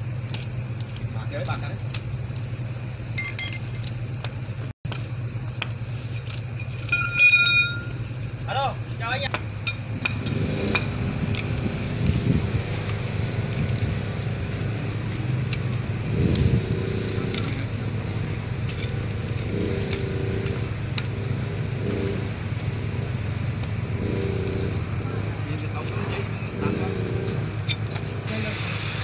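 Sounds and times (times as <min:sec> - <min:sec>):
low engine hum: 0:00.0 - 0:29.0
light metallic clinks: 0:06.5 - 0:08.1.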